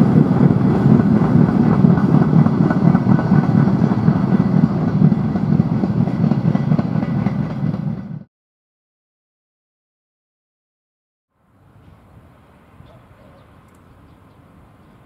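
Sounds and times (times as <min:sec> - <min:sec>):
train wheels clattering on rails: 0:00.0 - 0:08.3.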